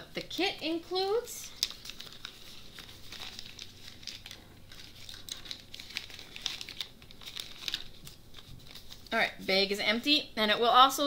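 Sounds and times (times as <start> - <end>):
plastic bag crinkling: 1.0 - 9.4.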